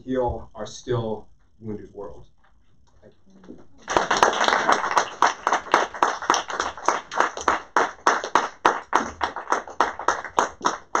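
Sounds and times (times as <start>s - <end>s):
audience applauding: 3.7s - 11.0s
close person clapping: 3.8s - 11.0s.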